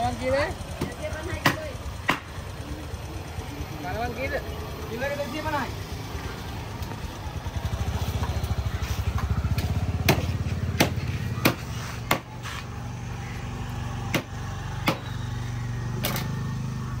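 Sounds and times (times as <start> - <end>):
small motorcycle engine idling: 0.0 - 17.0
sharp knocks: 10.0 - 12.3.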